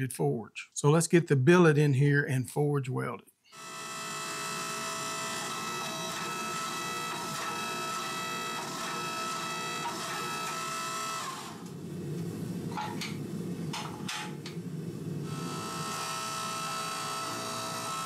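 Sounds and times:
hydraulic press whine: 3.5s - 18.0s
low machine hum: 11.6s - 18.0s
metal knocks and scrapes: 12.7s - 14.5s.

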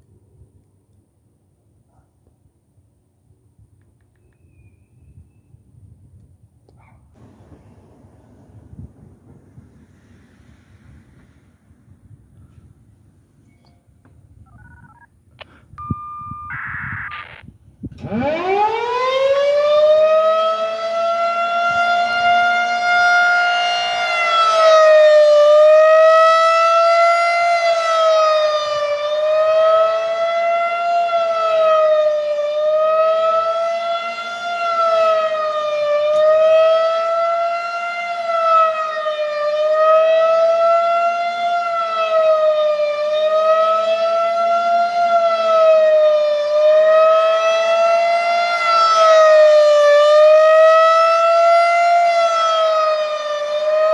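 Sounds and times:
rotating warning siren wailing: 16.2s - 53.9s.

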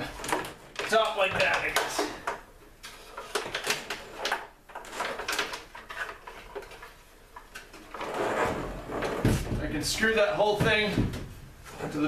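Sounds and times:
wooden cabinet knocking and scraping: 7.7s - 12.0s.

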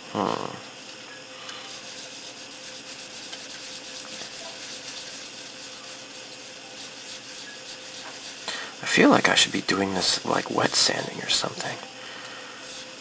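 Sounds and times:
cloth rubbing on plastic: 1.7s - 11.8s.

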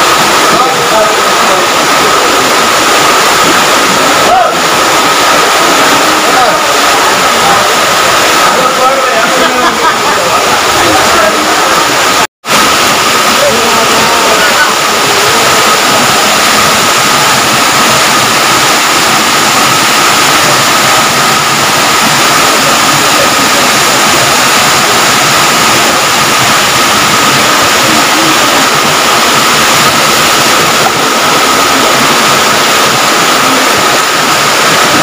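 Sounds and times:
floodwater rushing over a drop: 0.0s - 35.0s.

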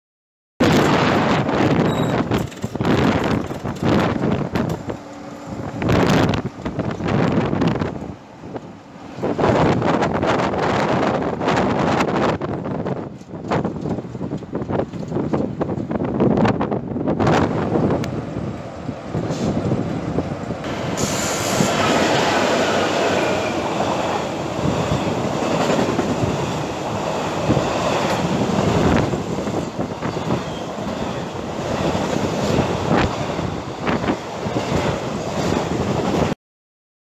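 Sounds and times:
freight train wheels rumbling: 0.6s - 36.4s
wheels clattering over rail joints: 2.0s - 7.4s.

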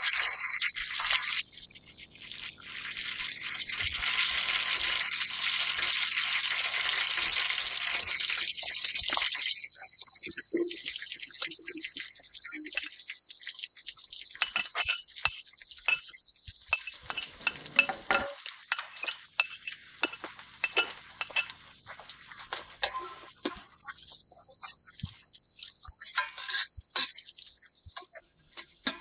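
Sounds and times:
onions sizzling in hot oil: 0.0s - 29.0s
spoon scraping metal pot: 14.4s - 21.6s, 22.5s - 23.8s, 26.0s - 27.2s, 28.0s - 29.0s.

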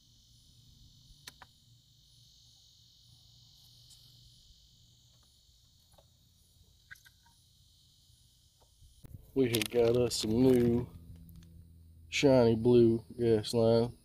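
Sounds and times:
faint insects chirring: 0.0s - 14.0s
handling clicks: 9.4s - 11.5s.

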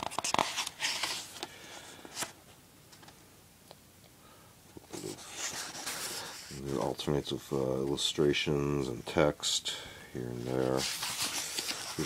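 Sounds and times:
book pages turning: 0.0s - 2.4s, 4.9s - 7.1s, 10.4s - 12.0s.

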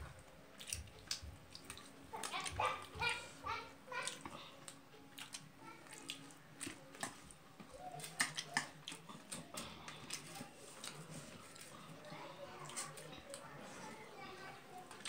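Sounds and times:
chewing: 0.0s - 15.0s
fingers mixing rice on metal plate: 4.0s - 12.0s.

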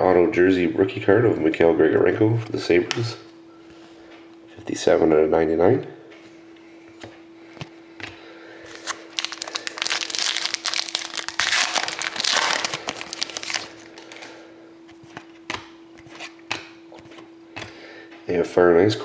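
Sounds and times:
faint steady hum: 0.0s - 19.0s
trading cards crinkling: 8.7s - 17.2s.

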